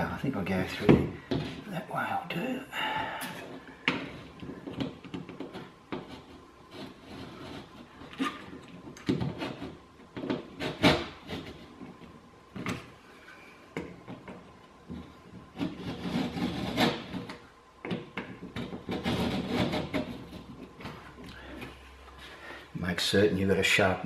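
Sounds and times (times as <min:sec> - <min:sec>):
knife scraping plasterboard: 0:03.4 - 0:09.8, 0:15.5 - 0:17.4, 0:18.4 - 0:21.6.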